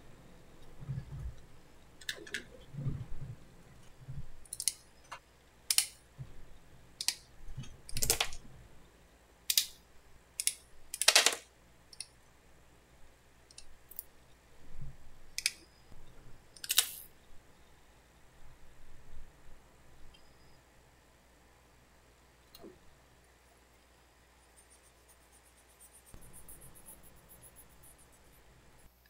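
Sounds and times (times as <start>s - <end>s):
small plastic parts clicking and tapping: 4.4s - 6.0s, 7.0s - 8.4s, 9.5s - 9.8s, 10.4s - 12.1s.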